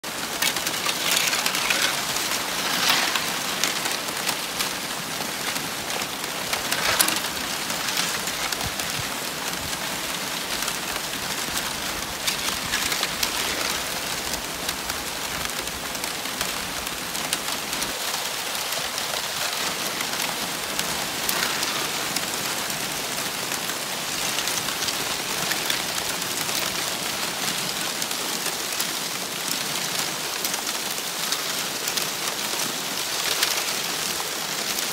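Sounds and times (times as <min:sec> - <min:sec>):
ice plates clinking and rubbing: 0:00.1 - 0:09.5, 0:11.6 - 0:14.6.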